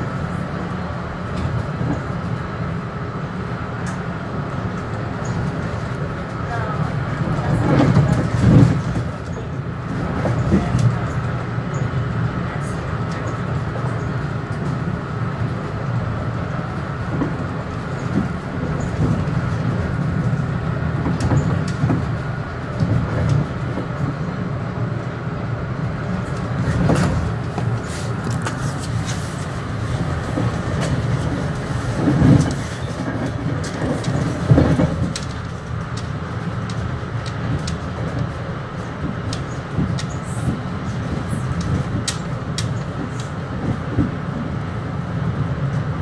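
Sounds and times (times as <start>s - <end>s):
train knocks and rattles: 0.0s - 46.0s
train rumbling on track: 0.0s - 46.0s.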